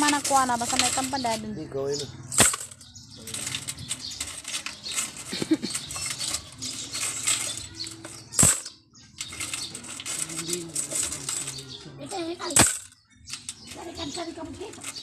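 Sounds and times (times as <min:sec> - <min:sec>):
coins clinking and rattling: 0:00.0 - 0:01.5, 0:02.3 - 0:11.8, 0:12.4 - 0:15.0
sharp clack: 0:02.4 - 0:10.2.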